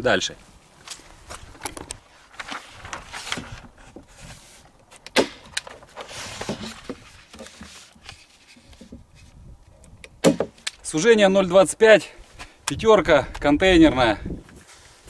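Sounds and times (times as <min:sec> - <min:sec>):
paper rustling: 0:00.9 - 0:05.0, 0:05.6 - 0:09.3.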